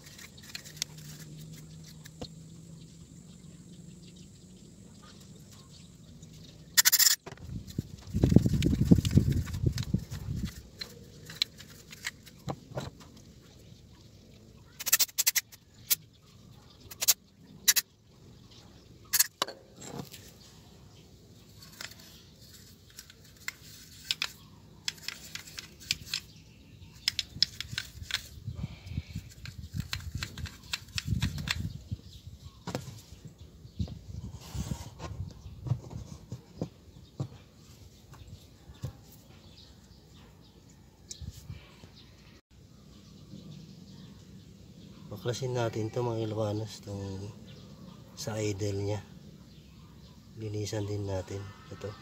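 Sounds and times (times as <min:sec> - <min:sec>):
clicks and knocks of handled part: 0:21.6 - 0:26.3, 0:26.9 - 0:28.4.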